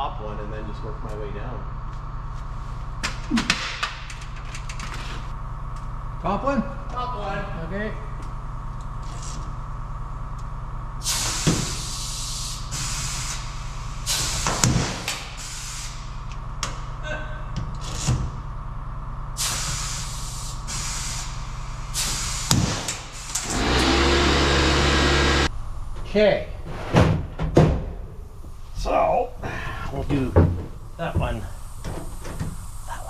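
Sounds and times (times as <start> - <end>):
truck engine idling: 5.2 - 14.1, 15.2 - 26.8
pneumatic tool hissing and cracking: 11.0 - 16.1, 17.8 - 18.3, 19.4 - 24.2.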